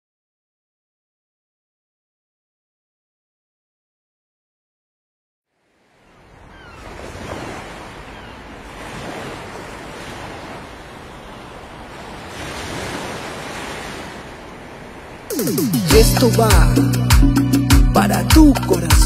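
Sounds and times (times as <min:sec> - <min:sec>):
ocean surf breaking on beach: 0:05.5 - 0:15.9.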